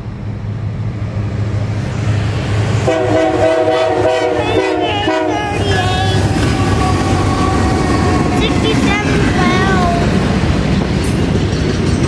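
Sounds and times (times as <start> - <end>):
locomotive air horn: 2.8 - 8.8.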